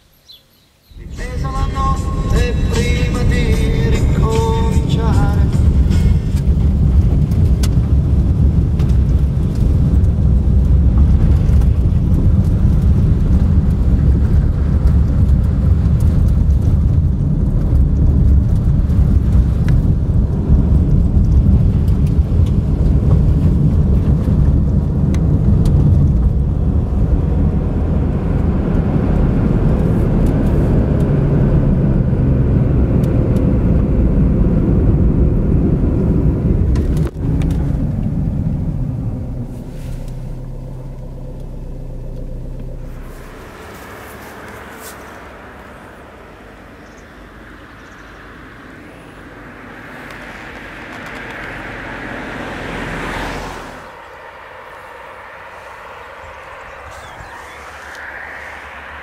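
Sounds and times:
car engine and tyres rumbling: 0:00.0 - 0:59.0.

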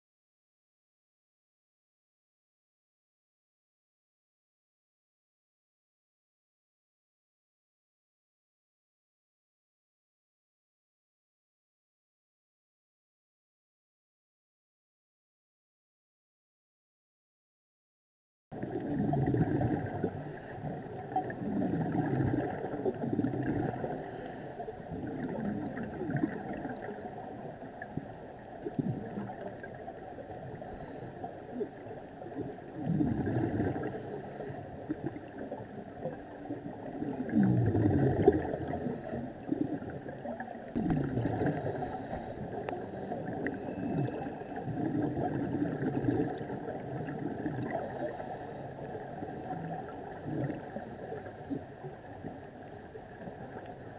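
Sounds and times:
low rush of water: 0:18.6 - 0:53.9
regulator bubbles gurgling: 0:18.6 - 0:53.9.

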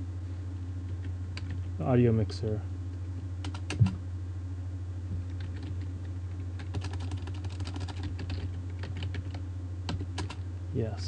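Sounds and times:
typing on computer keyboard: 0:03.4 - 0:04.0, 0:05.3 - 0:05.8, 0:06.6 - 0:10.4.

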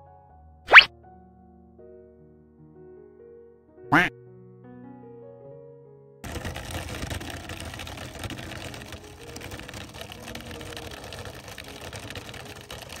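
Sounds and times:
wooden cart rattling over ground: 0:06.2 - 0:13.0.

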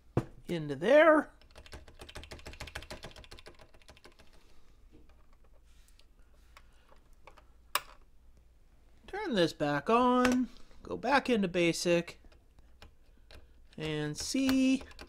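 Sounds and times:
keyboard key clicking rapidly: 0:01.4 - 0:04.4, 0:14.1 - 0:15.0.

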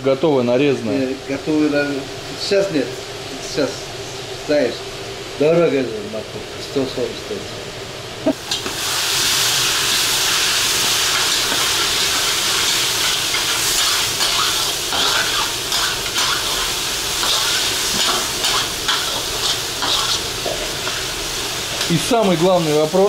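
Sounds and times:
carrot sizzling in hot oil: 0:08.3 - 0:23.0.

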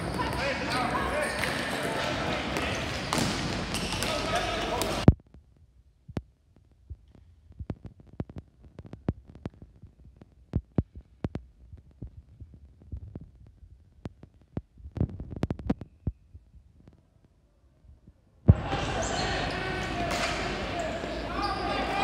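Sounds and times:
hockey sticks and ball clacking: 0:00.0 - 0:05.1, 0:18.6 - 0:22.0.

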